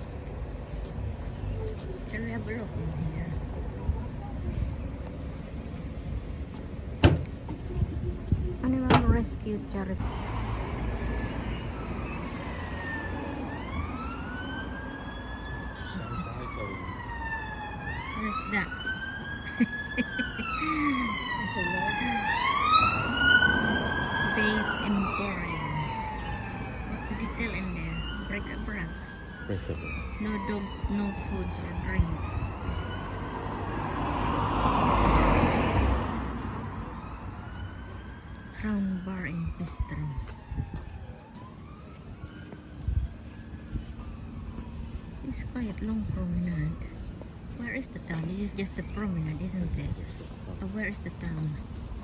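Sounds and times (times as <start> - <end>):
car passing by: 10.0 - 13.7, 21.6 - 26.8, 32.2 - 37.4
emergency siren wailing: 10.0 - 47.1.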